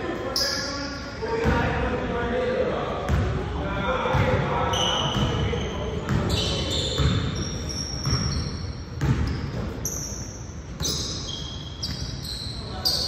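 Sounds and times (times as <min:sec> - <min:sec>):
basketball bouncing on gym floor: 0:03.1 - 0:03.4, 0:04.1 - 0:10.1, 0:10.7 - 0:12.2
sneakers squeaking on court: 0:04.1 - 0:13.0.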